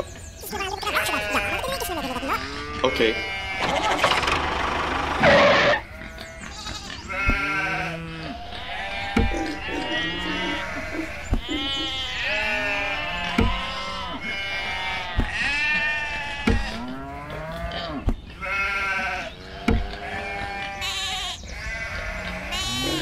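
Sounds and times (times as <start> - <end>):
sheep bleating: 0.8 - 4.1, 5.2 - 23.0
dull thump: 13.3 - 13.6.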